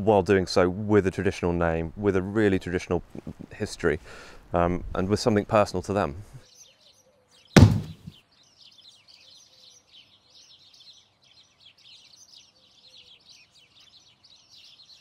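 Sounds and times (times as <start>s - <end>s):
small birds chirping: 5.2s - 15.0s.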